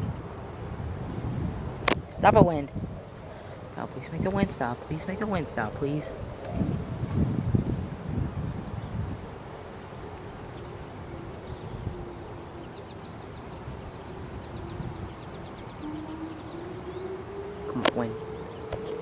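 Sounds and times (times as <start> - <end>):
distant warning siren: 0.0 - 19.0
wind buffeting microphone: 0.0 - 19.0.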